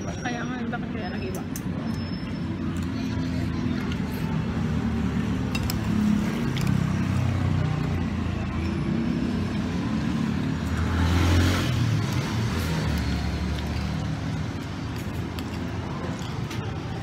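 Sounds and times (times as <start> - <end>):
street traffic: 0.0 - 17.0
vehicle passing: 9.0 - 16.1.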